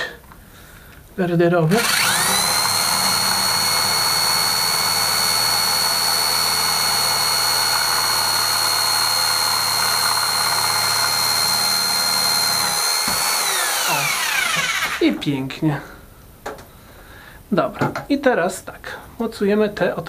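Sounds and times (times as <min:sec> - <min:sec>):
hammer drill drilling into tile: 0:01.7 - 0:15.0.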